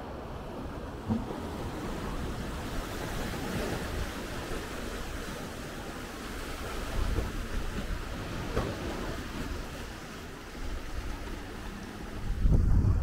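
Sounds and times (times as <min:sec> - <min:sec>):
sea waves washing onto beach: 0:00.0 - 0:13.0
wind on microphone: 0:10.6 - 0:13.0.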